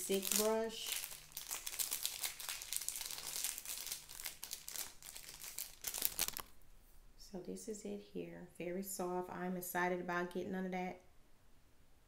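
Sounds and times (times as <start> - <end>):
crinkly wrapping crackling: 0.0 - 6.6.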